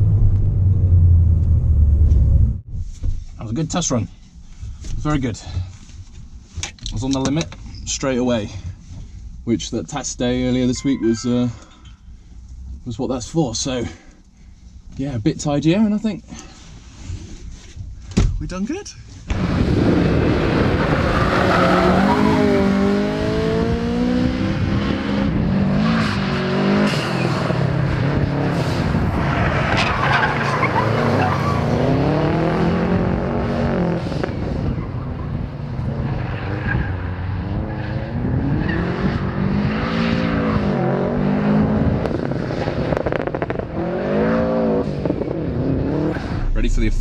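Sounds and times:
tyre squeal: 10.6 - 11.9
car engines revving: 19.3 - 47.0.

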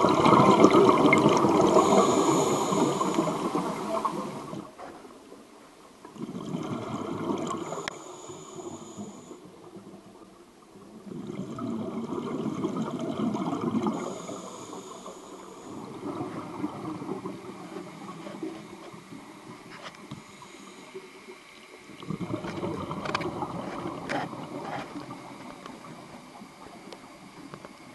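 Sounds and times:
bubbling underwater exhalation: 0.0 - 4.6, 6.1 - 7.8, 11.0 - 14.5, 21.9 - 25.2
high hiss from air supply: 1.5 - 4.7, 7.6 - 9.5, 13.8 - 16.0.

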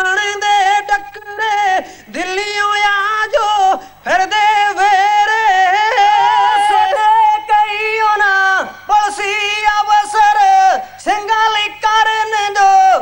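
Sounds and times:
man singing through a microphone: 0.0 - 13.0.

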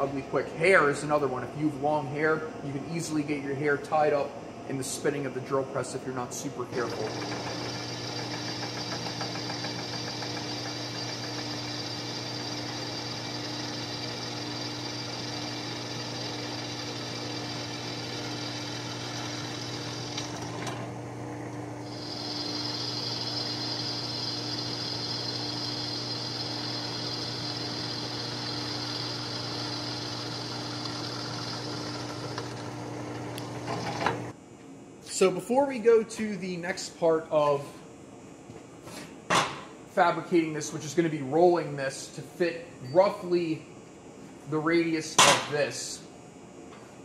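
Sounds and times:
drill press motor hum: 6.7 - 34.4
drill bit cutting steel hiss: 6.8 - 20.3, 21.9 - 31.6.

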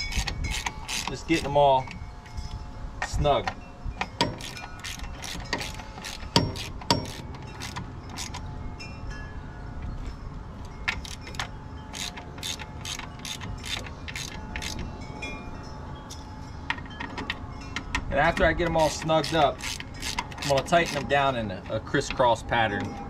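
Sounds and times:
socket ratchet clicking: 0.0 - 1.5, 4.0 - 8.5, 10.9 - 14.9, 16.7 - 21.1
metal tools clinking: 0.0 - 8.6, 9.8 - 23.0.

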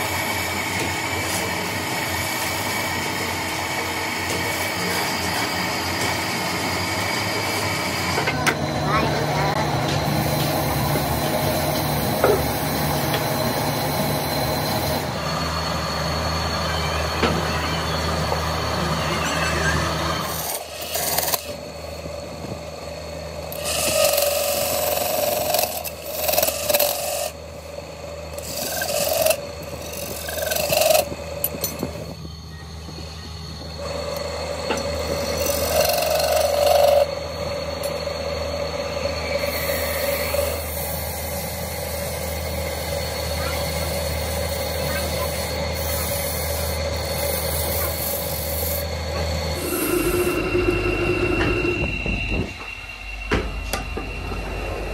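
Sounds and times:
wood lathe humming: 0.0 - 53.1
turning tool scraping wood: 20.2 - 21.6, 23.5 - 27.4, 28.4 - 32.0, 33.9 - 37.2.

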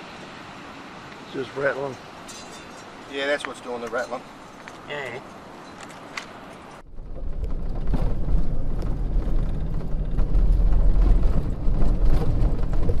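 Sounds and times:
vehicle rumbling on dirt track: 6.8 - 13.0
vehicle knocks and rattles: 6.9 - 13.0.

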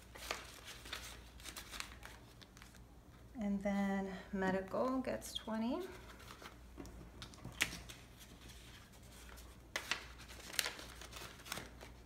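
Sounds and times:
paper rustling: 0.0 - 2.8, 5.9 - 12.0.

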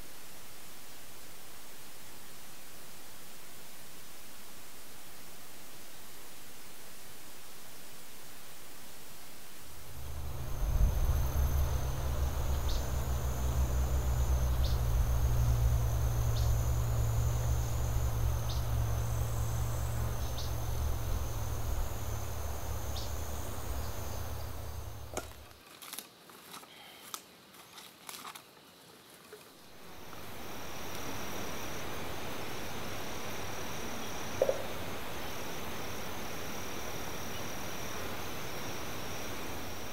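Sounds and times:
high insect buzz: 8.9 - 25.6, 29.5 - 39.9
low rumble: 9.6 - 25.5
crackles and rustles: 25.0 - 29.7.

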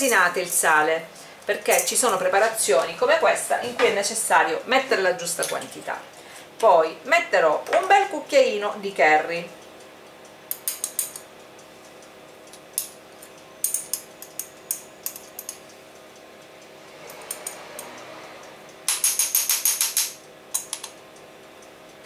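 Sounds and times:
faint steady hum: 0.0 - 22.0
teaspoon clicking against jar: 10.5 - 11.3.

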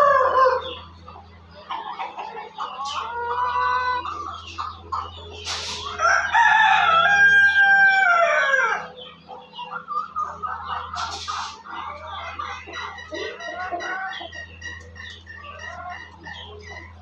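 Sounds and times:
rooster crowing: 0.0 - 0.7, 6.0 - 9.0
chickens calling: 0.0 - 17.0.

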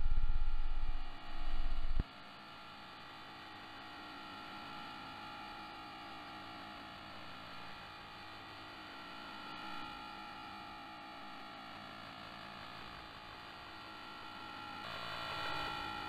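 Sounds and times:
loud pulsing low hum: 0.0 - 2.0
radio static hiss and hum: 0.0 - 2.0.

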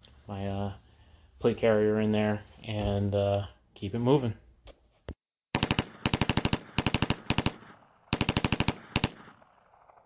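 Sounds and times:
automatic gunfire bursts: 5.5 - 9.6.

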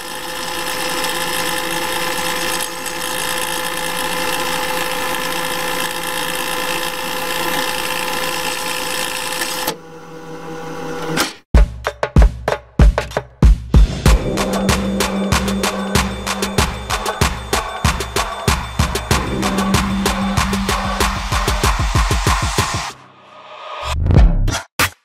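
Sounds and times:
music with heavy drum thumps: 11.5 - 23.0, 23.9 - 24.5
held tones: 14.1 - 22.5.

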